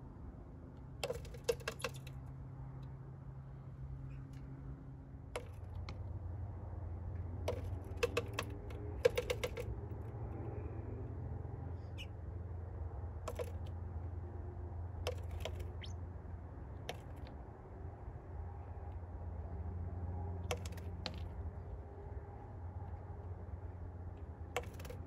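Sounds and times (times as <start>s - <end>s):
bird pecking on glass: 1.0s - 2.2s, 5.4s - 5.8s, 7.5s - 9.8s, 13.3s - 13.7s, 15.0s - 16.0s, 20.4s - 21.2s.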